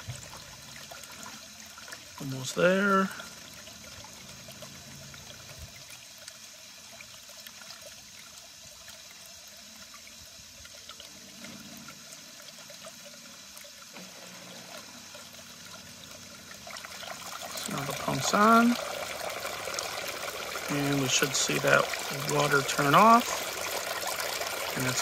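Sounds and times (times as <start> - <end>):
water trickling into fountain basin: 0.0 - 25.0.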